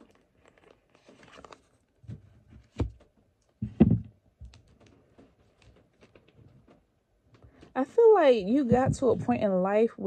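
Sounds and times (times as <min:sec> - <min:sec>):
cards being shuffled: 0:00.6 - 0:01.8.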